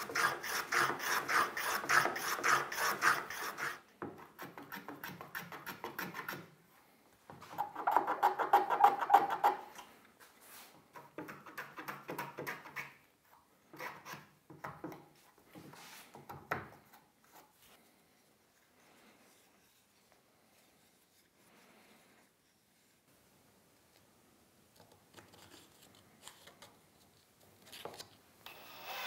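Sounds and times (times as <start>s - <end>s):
wooden block rasping on sandpaper: 0.0s - 6.4s.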